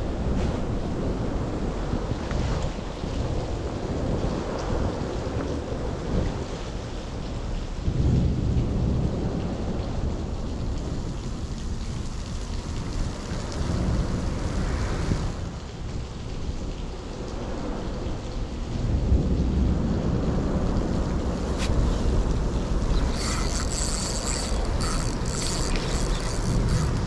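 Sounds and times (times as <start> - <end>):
heavy rain pattering: 0.0 - 27.0
low rumble: 7.8 - 9.7.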